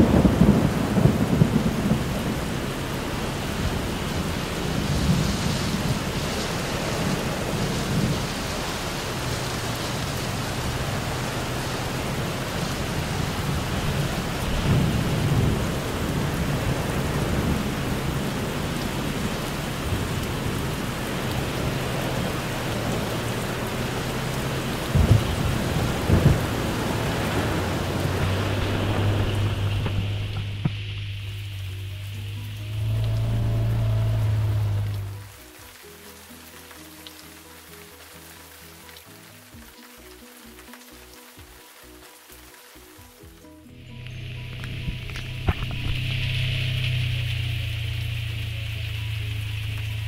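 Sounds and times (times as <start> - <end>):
thunder rumbles: 0.0 - 35.3
low engine hum: 0.0 - 35.6, 43.7 - 50.0
heavy rain on vehicle: 0.0 - 50.0.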